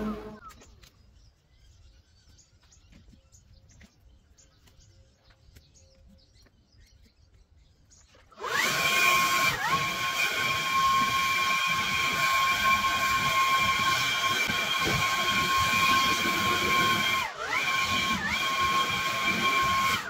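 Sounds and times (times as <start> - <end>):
leaf blower motor whine: 0.0 - 0.6, 8.3 - 20.0
faint chirps and clicks: 0.4 - 8.3.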